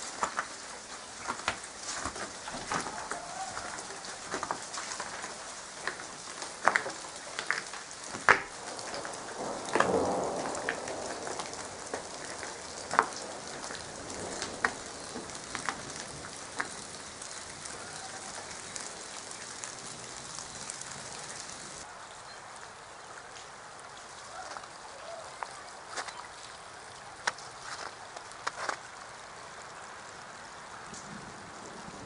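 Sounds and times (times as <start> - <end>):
rain patter: 0.0 - 32.0
sharp ticks and knocks: 4.3 - 9.0.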